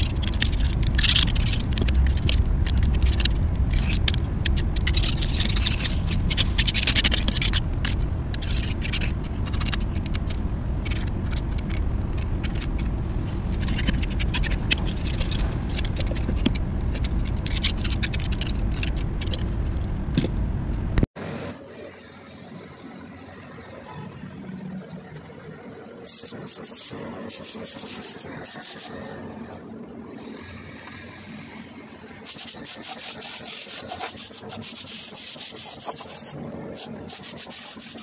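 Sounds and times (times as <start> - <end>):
low rumble: 0.0 - 21.4.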